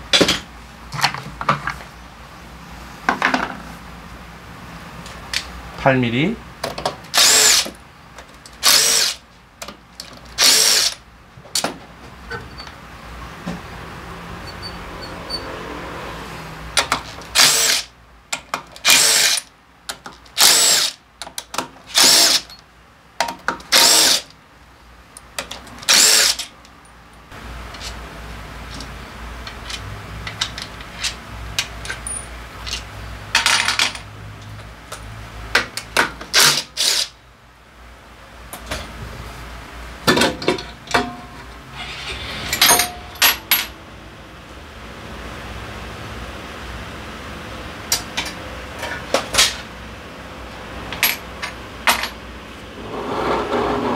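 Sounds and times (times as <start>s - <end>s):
cordless power driver bursts: 7.2s - 7.7s, 8.6s - 9.2s, 17.3s - 17.9s, 22.0s - 22.5s.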